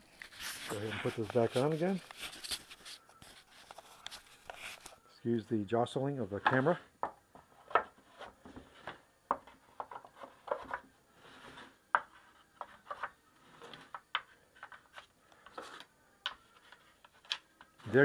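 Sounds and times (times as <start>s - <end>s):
wooden trays clicking and tapping: 6.4s - 10.9s, 11.9s - 18.0s
wooden tray scraping slide: 11.1s - 12.0s, 13.4s - 14.0s.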